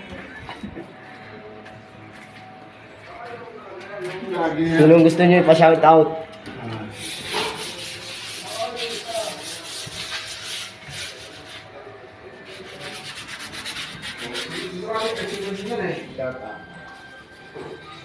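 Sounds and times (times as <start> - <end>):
rubbing and scratching noise: 6.9 - 11.8, 12.4 - 16.1.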